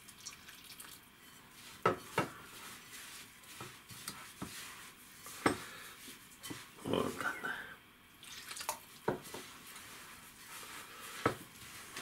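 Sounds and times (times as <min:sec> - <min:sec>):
water pouring: 0:00.0 - 0:01.1, 0:08.2 - 0:09.0
soft rustling: 0:01.3 - 0:07.4, 0:09.0 - 0:12.0.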